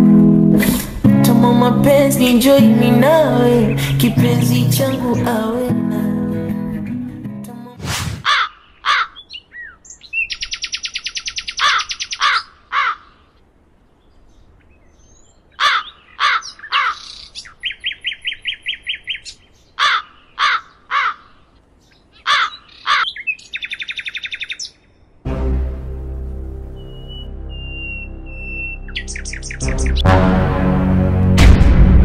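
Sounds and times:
birds cawing: 8.2s - 9.9s, 11.2s - 13.4s, 15.5s - 24.7s.

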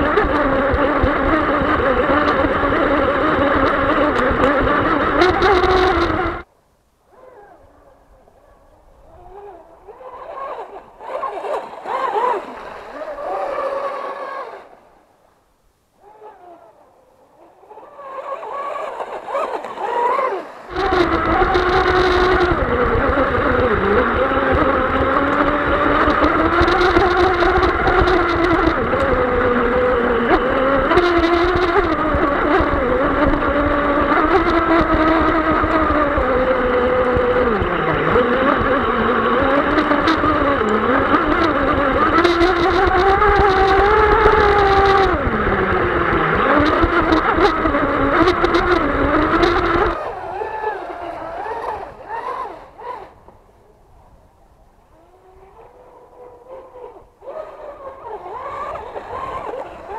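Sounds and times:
electric motor whine: 0.0s - 6.5s, 9.0s - 15.3s, 16.0s - 54.1s, 54.8s - 59.9s
wind buffeting microphone: 18.8s - 59.9s.

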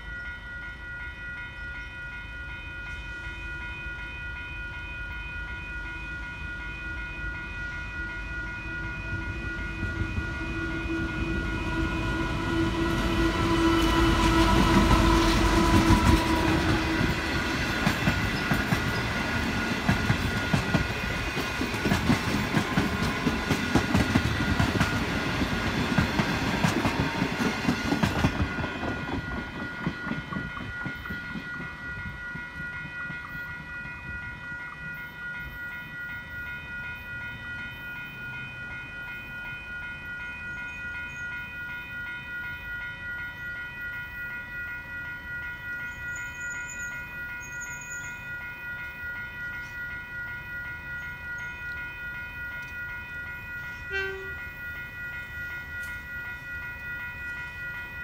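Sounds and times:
diesel locomotive engine: 0.0s - 58.0s
level crossing bells ringing: 0.0s - 58.0s
train wheels clattering over rails: 13.0s - 33.2s.

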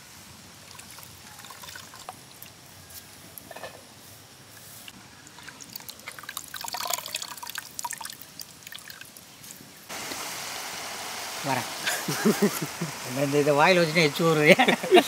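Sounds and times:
steady hiss: 0.0s - 5.3s, 8.3s - 15.0s
water dripping and trickling: 0.6s - 2.7s, 4.9s - 15.0s.

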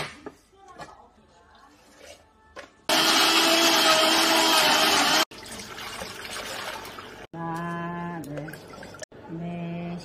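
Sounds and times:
blender motor running: 2.9s - 5.3s.

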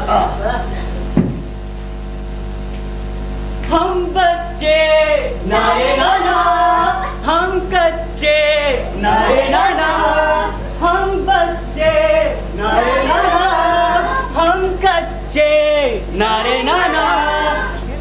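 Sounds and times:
steady low hum: 0.0s - 18.0s
men and women singing: 4.6s - 18.0s.

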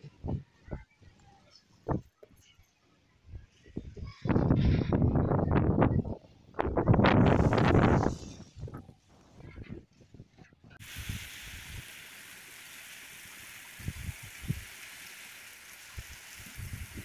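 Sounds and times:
heavy rain on pavement: 10.8s - 17.0s.

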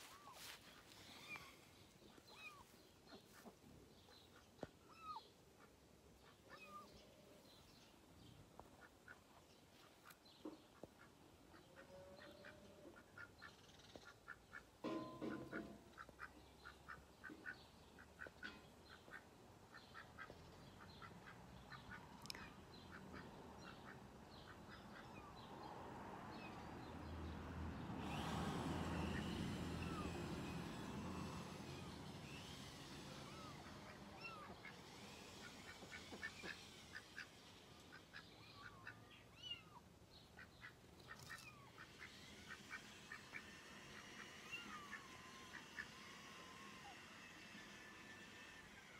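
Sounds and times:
ducks quacking: 32.3s - 39.1s.

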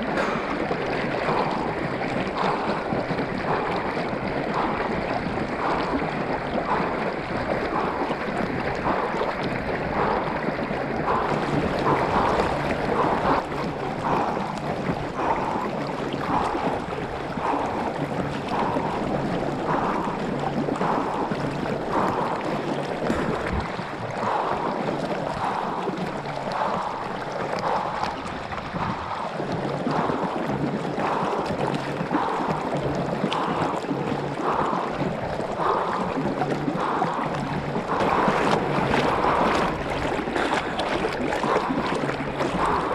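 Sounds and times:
rhythmic water slaps: 0.0s - 42.9s.

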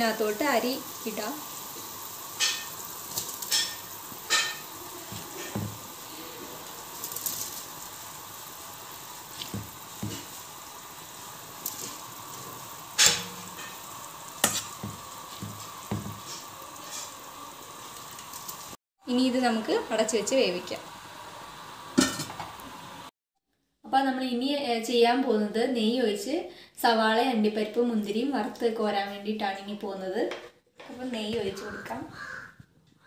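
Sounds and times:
water boiling in a pot: 0.0s - 23.1s.

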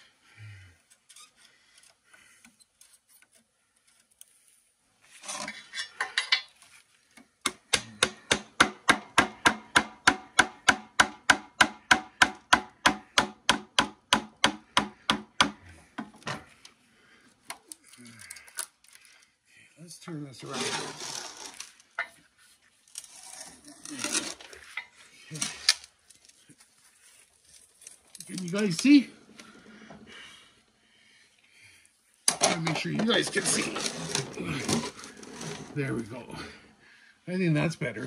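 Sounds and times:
screwdriver scraping: 20.4s - 21.7s, 33.0s - 35.8s.

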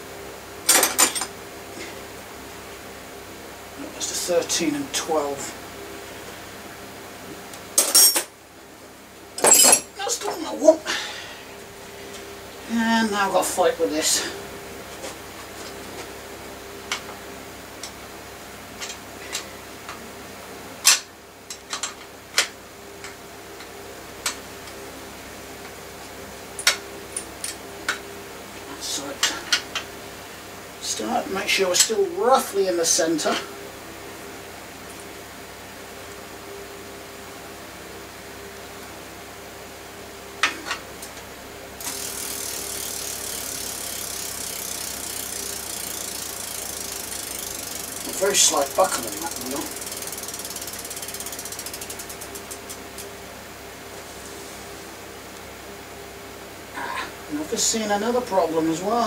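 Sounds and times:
faint steady hum: 0.0s - 59.0s
freewheel ticking rapidly: 41.8s - 53.0s
bike crank clicks: 41.8s - 53.1s.

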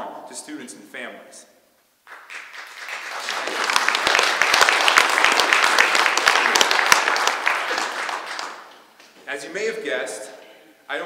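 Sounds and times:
audience applauding: 2.1s - 8.9s.

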